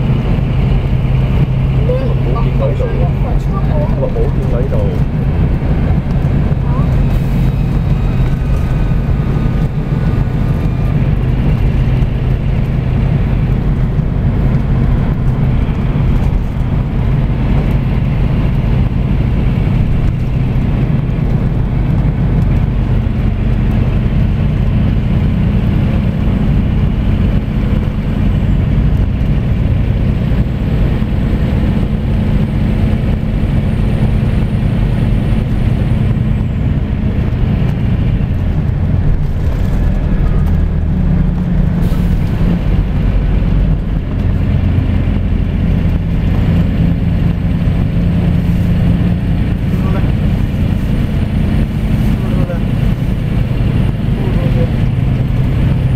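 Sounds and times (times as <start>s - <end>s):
coach diesel engine drone: 0.0s - 55.9s
road noise: 0.0s - 55.9s.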